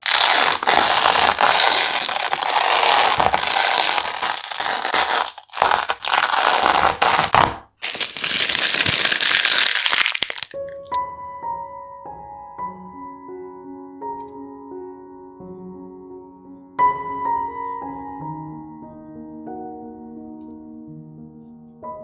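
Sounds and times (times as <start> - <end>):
adhesive tape peeling off: 0.0 - 11.0
soft piano music: 0.0 - 22.0.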